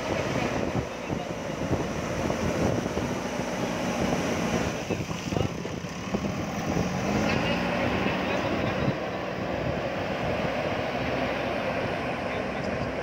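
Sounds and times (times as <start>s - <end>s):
diesel engine under load: 0.0s - 13.0s.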